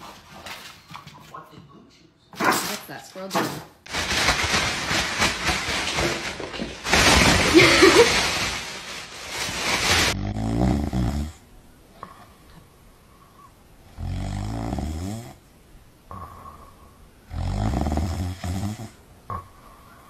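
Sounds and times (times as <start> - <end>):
plastic bag rustling: 3.8 - 10.4
dog snoring: 10.1 - 11.4, 13.9 - 15.4, 17.3 - 19.8.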